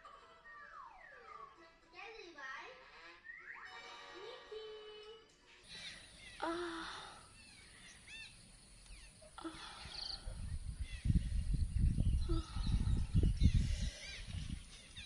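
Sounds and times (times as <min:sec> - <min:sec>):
birds chirping: 0:04.5 - 0:15.0
woman moaning faintly: 0:06.4 - 0:07.3, 0:09.4 - 0:10.2
wind buffeting microphone: 0:09.8 - 0:15.0.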